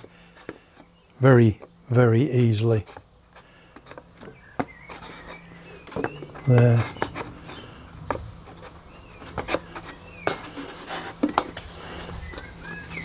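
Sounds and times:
taps and clicks of balsa wood: 0:11.2 - 0:11.7.

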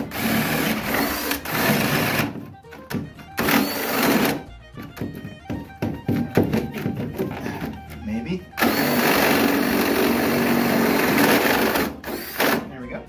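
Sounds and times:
power drill boring through wood: 0:00.0 - 0:02.4, 0:03.4 - 0:04.4, 0:08.6 - 0:12.7
short knocks and clicks: 0:04.7 - 0:08.0.

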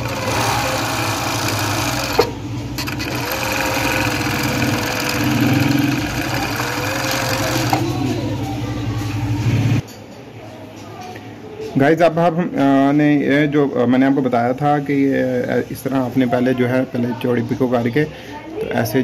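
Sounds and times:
sewing machine whirring: 0:00.0 - 0:08.2.

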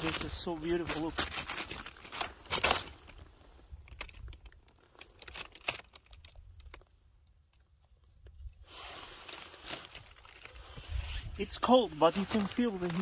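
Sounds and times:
lava rock crunching underfoot: 0:00.0 - 0:05.9
soft rushing rustle: 0:08.6 - 0:13.0.

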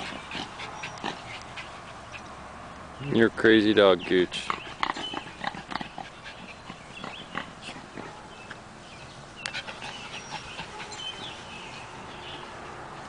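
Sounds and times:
dog panting: 0:00.0 - 0:02.4, 0:04.5 - 0:08.3, 0:09.4 - 0:11.7.

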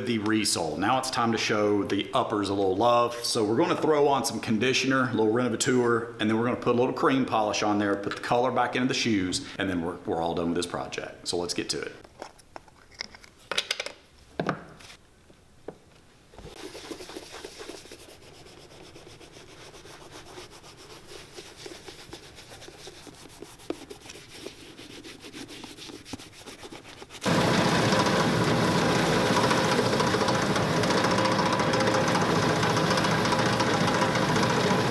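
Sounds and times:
cloth rubbing leather: 0:16.4 - 0:27.3
buffing wheel machine: 0:27.2 - 0:34.9.

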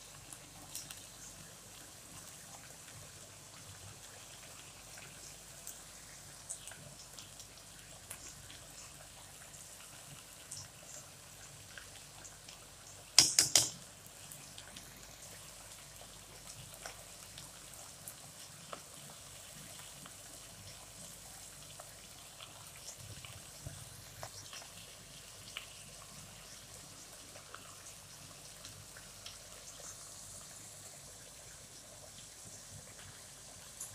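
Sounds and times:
spoon clinking: 0:13.2 - 0:13.8.

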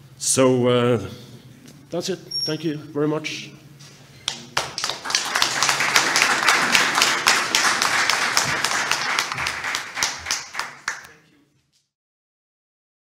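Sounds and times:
audience applauding: 0:04.3 - 0:11.2.

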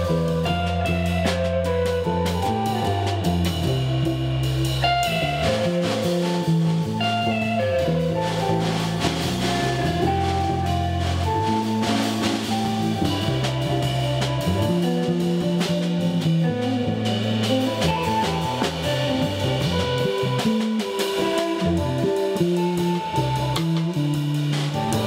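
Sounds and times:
bass line: 0:00.0 - 0:25.0
drum kit: 0:00.0 - 0:25.0
electric guitar: 0:00.0 - 0:25.0.

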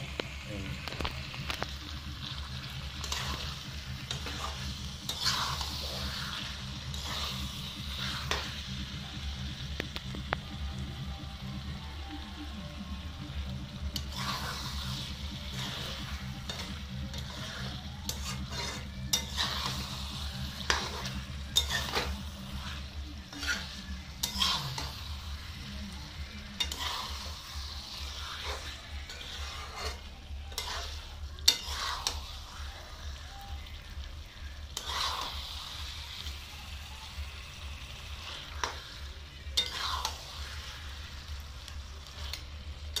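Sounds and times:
soft sizzle: 0:00.0 - 0:43.0
spatula scraping a pan: 0:02.3 - 0:08.7, 0:13.9 - 0:25.6, 0:26.3 - 0:33.0, 0:34.6 - 0:36.4, 0:38.0 - 0:41.2, 0:41.9 - 0:43.0.

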